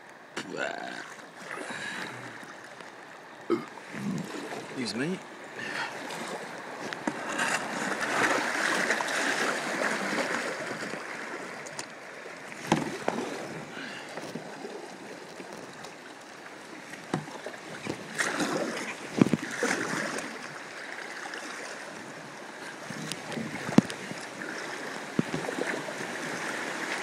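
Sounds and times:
rushing water: 0:00.0 - 0:27.0
hull and paddle knocks and splashes: 0:06.0 - 0:11.9, 0:12.5 - 0:16.0, 0:16.8 - 0:20.5, 0:22.8 - 0:27.0.

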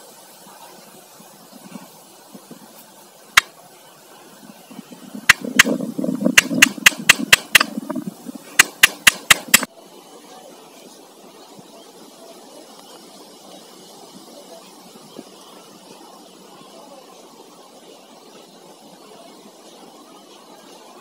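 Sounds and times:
wooden handle knocking on concrete: 0:05.3 - 0:08.0, 0:08.6 - 0:09.7.

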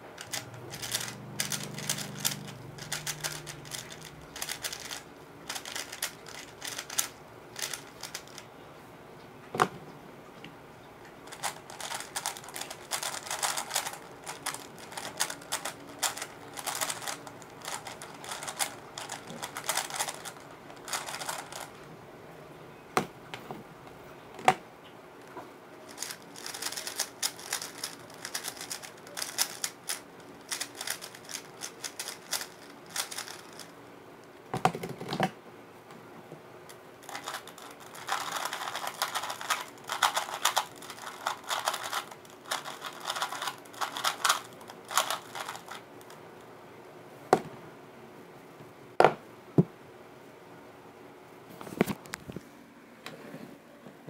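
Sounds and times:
speed cube clicking and clattering: 0:00.2 - 0:08.4, 0:11.3 - 0:21.8, 0:25.9 - 0:33.7, 0:37.0 - 0:46.2.

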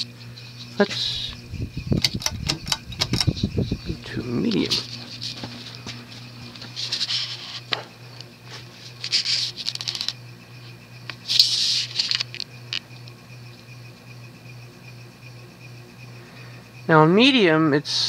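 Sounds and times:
scratchy rasps from fan motor: 0:00.0 - 0:13.8
ceiling fan motor humming: 0:00.0 - 0:18.0.

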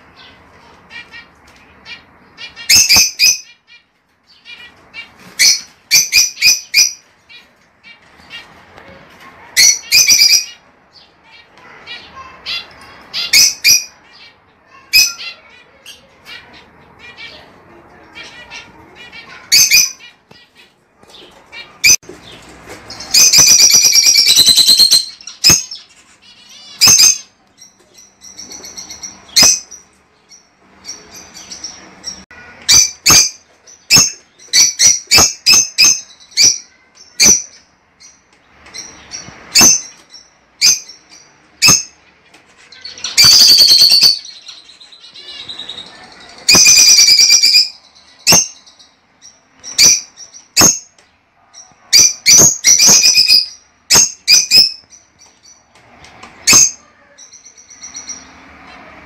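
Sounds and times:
lovebirds shrieking and chirping: 0:00.0 - 0:59.0
rapid chattering bird calls: 0:38.2 - 0:51.0.

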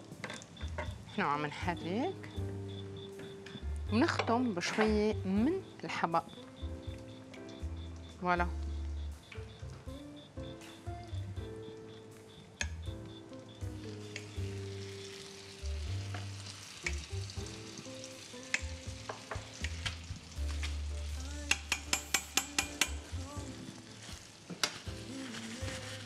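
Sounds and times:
background music with bass: 0:06.4 - 0:15.0, 0:15.6 - 0:23.9
bread sizzling in butter: 0:13.4 - 0:26.0.

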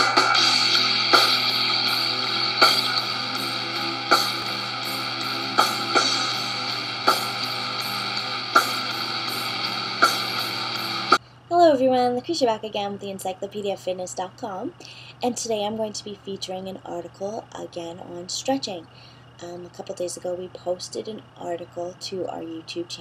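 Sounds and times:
instrumental chords with accented hits: 0:00.0 - 0:11.2.

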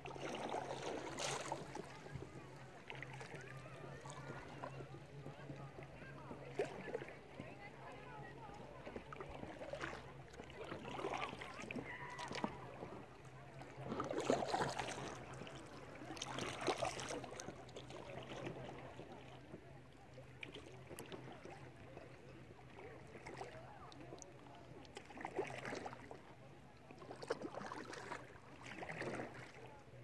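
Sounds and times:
water splashing around canoe: 0:00.0 - 0:30.0.

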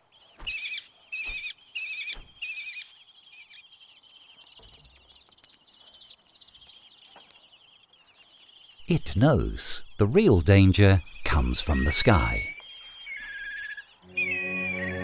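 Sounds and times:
harsh chittering bird calls: 0:00.0 - 0:15.0
high bird trilling: 0:00.3 - 0:15.0.

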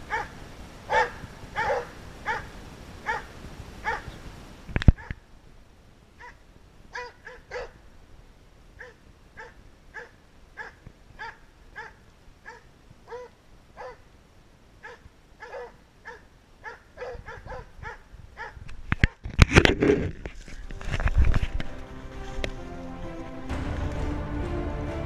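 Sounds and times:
dog barking: 0:00.1 - 0:04.2, 0:06.2 - 0:07.8, 0:08.8 - 0:14.0, 0:14.8 - 0:18.6.

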